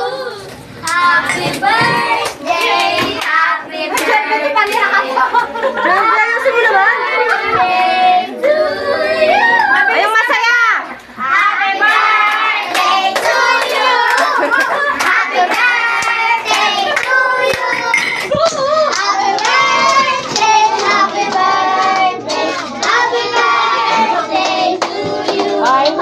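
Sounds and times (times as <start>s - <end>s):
children singing together: 0.0s - 6.0s, 6.8s - 9.7s, 11.2s - 26.0s
children clapping hands: 0.8s - 5.0s, 11.8s - 26.0s.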